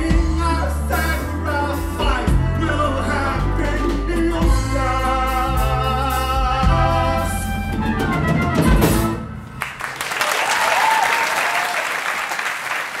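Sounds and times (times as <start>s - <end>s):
audience applauding: 9.5s - 13.0s
audience cheering: 9.6s - 13.0s.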